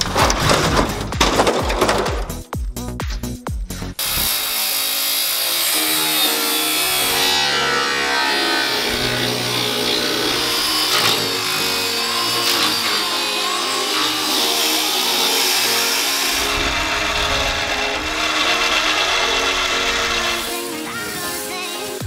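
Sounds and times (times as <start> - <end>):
background music: 0.0 - 22.0
angle grinder cutting steel: 4.0 - 22.0
deep low rumble: 16.3 - 20.3.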